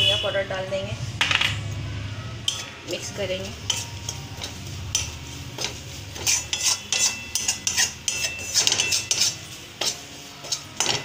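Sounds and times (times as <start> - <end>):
metal spatula scraping metal pan: 2.5 - 11.0.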